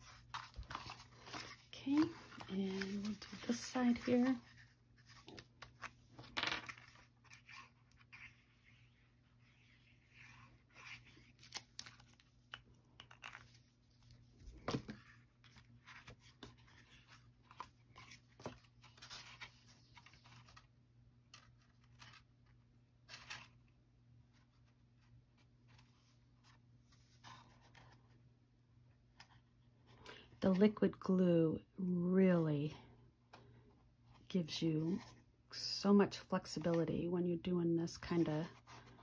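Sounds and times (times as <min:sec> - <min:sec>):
paper rustling: 0:00.0 - 0:08.7.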